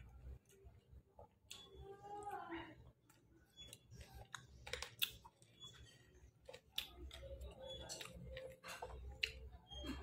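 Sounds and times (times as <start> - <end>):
close-up chewing: 3.0 - 9.9.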